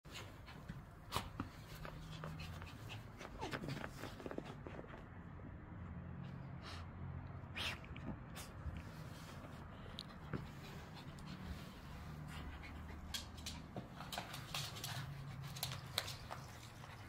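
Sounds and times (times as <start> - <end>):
dog panting: 0.1 - 4.6, 8.4 - 17.0.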